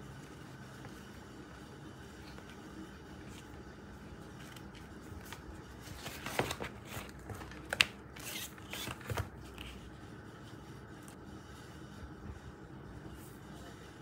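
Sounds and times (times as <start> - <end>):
plastic and fabric rustling: 4.3 - 9.9.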